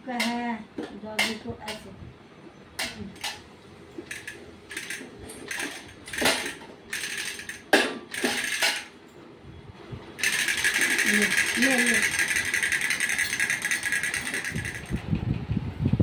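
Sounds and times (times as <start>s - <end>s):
metal bowls and toys clinking: 4.0s - 9.0s, 10.2s - 15.0s.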